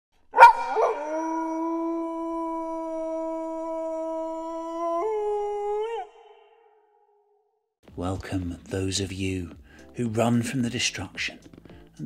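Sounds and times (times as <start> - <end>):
wolf howling: 0.4 - 7.1.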